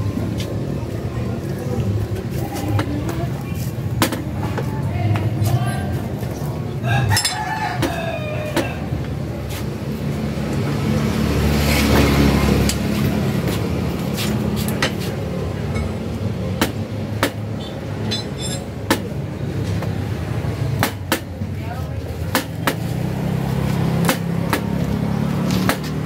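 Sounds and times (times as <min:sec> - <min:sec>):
vehicle engine humming: 0:00.0 - 0:26.0
vehicle passing: 0:08.8 - 0:17.0, 0:21.6 - 0:26.0.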